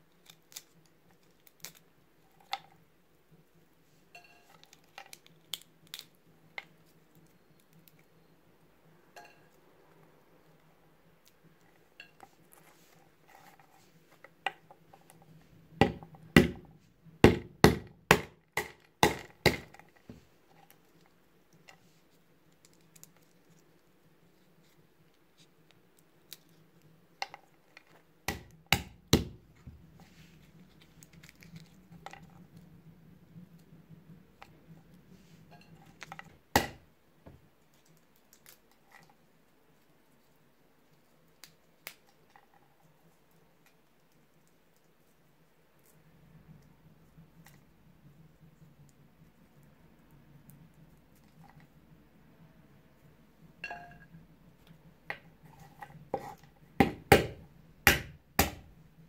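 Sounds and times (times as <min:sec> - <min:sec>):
mallet knocking walnuts on wood: 0:15.8 - 0:19.8, 0:28.3 - 0:29.4, 0:36.5 - 0:36.8, 0:56.8 - 0:58.7.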